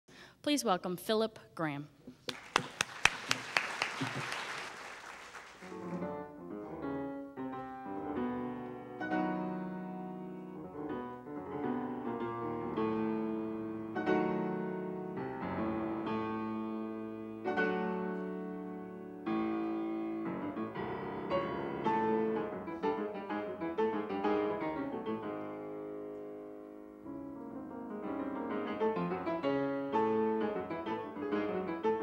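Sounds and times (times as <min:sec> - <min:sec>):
audience applause: 0:02.2 - 0:06.1
classical piano solo: 0:05.7 - 0:32.0.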